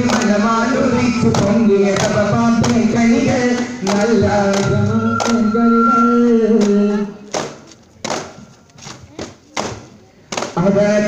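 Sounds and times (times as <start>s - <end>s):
men singing together: 0.0s - 7.2s.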